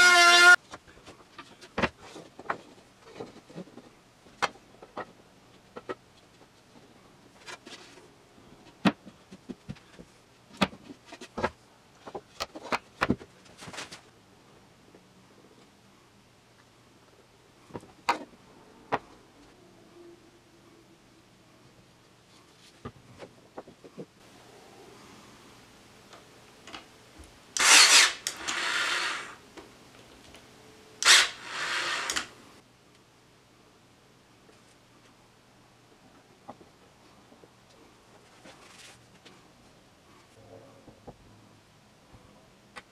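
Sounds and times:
nail gun motor whirr: 27.6s - 29.4s, 31.0s - 32.4s.

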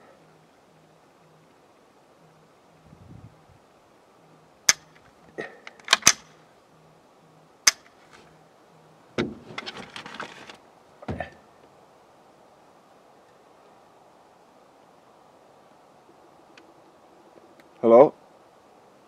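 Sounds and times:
rustling and crackling: 7.6s - 18.5s.

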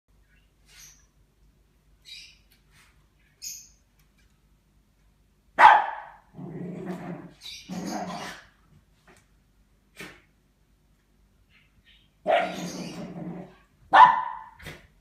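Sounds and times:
small dog barking: 5.6s - 6.2s, 12.2s - 12.8s, 13.9s - 14.6s
dog growling: 6.3s - 8.4s, 12.4s - 13.6s
dog yipping: 12.3s - 13.1s, 13.9s - 14.6s.

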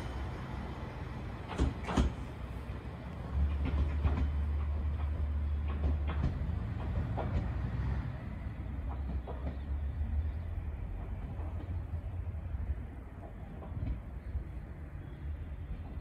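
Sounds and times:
diesel railcar engine rumble: 0.0s - 16.0s
wheels clicking over track: 1.3s - 14.4s.

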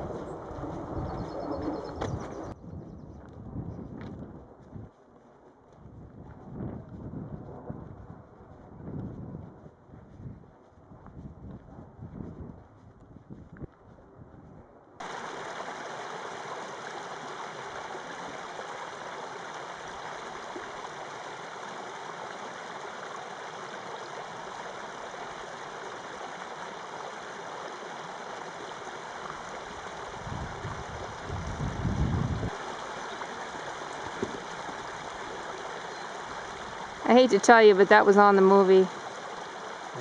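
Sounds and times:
low rumble: 0.0s - 4.9s
creek babbling over rocks: 15.0s - 31.8s, 32.4s - 40.0s.

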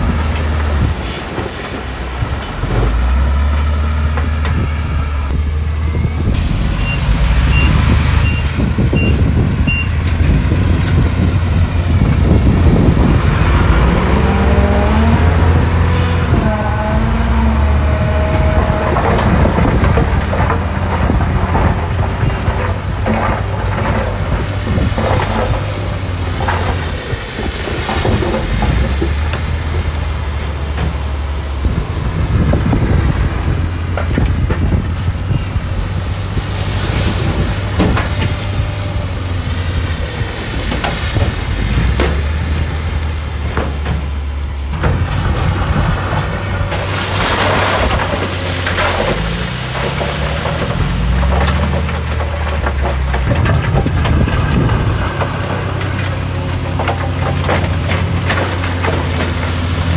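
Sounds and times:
heavy machinery engine drone: 0.0s - 59.9s
stone and gravel crunching: 45.0s - 59.9s.

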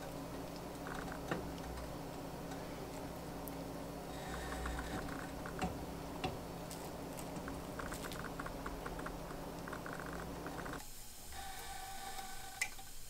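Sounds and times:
low hum: 0.0s - 10.8s
wooden skewer stirring wax pellets: 4.3s - 10.8s.

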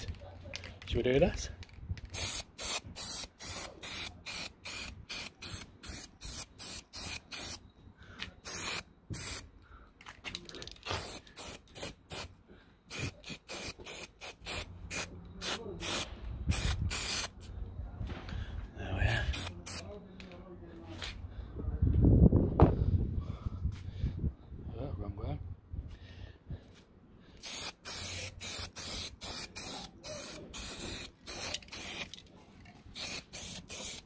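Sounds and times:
spray paint can bursts: 2.0s - 7.6s, 8.4s - 9.5s, 10.5s - 12.3s, 12.9s - 17.4s, 19.3s - 19.8s, 27.4s - 32.2s, 32.9s - 34.0s.

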